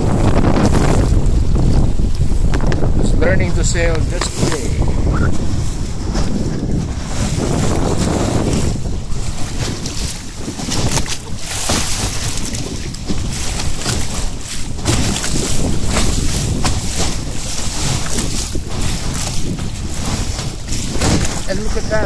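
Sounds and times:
bow wave rushing and splashing: 0.0s - 22.0s
wind buffeting microphone: 0.0s - 22.0s.

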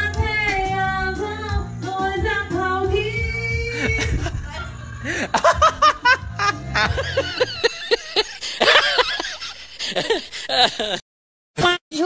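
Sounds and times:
person laughing hard: 3.7s - 11.0s.

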